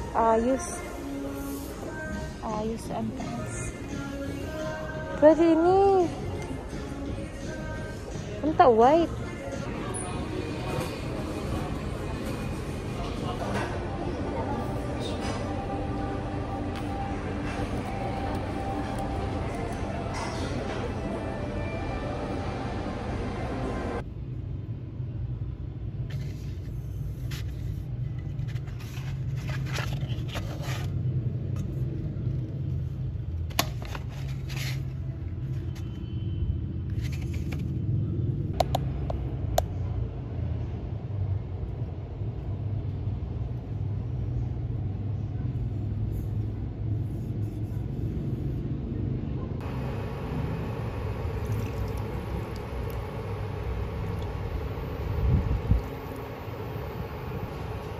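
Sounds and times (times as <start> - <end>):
steady low rumble: 37.8 - 57.9.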